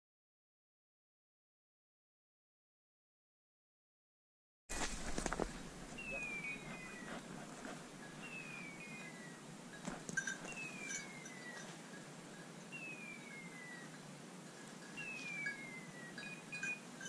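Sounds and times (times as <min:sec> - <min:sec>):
twigs and brush crackling underfoot: 0:04.7 - 0:08.1
beeper collar falling whistle tone: 0:06.0 - 0:07.1.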